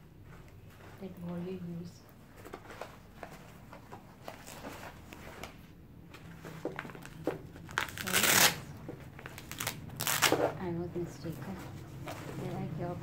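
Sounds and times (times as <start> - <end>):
fabric rustling: 0.1 - 13.0.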